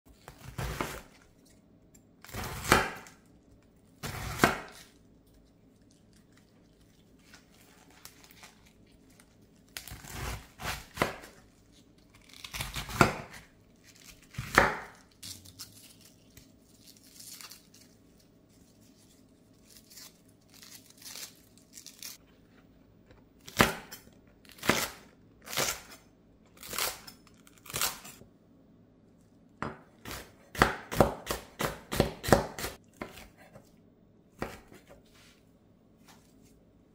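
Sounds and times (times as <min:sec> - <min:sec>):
cabbage leaves rustling and tearing: 0:04.0 - 0:22.2.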